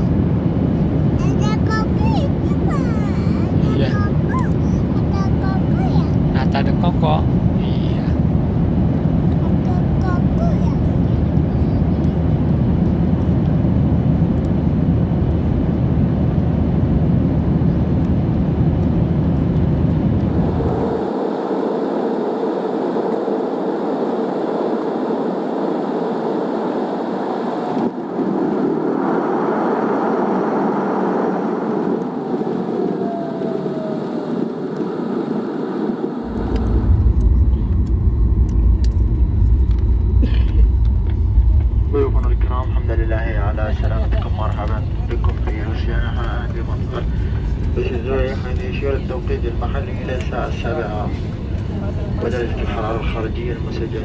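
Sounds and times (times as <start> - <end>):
airliner engine and airflow roar: 0.0 - 54.0
heavy low rumble: 0.0 - 54.0
faint falling whine: 19.9 - 54.0.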